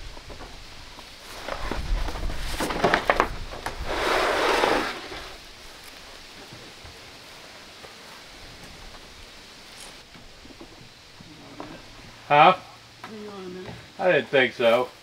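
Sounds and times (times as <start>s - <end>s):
board scraping: 1.2s - 5.4s.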